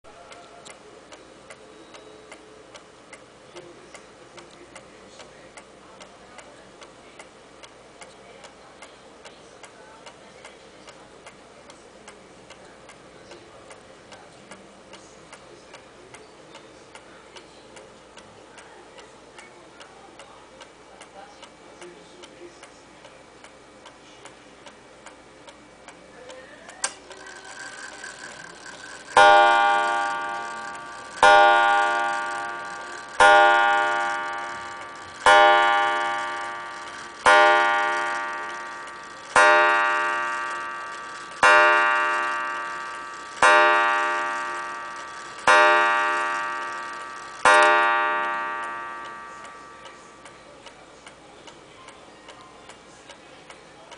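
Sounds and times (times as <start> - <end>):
pendulum clock ticking: 0.1 - 53.9
clock strike train click and whir: 26.8 - 51.2
clock gong striking: 27.3 - 49.9.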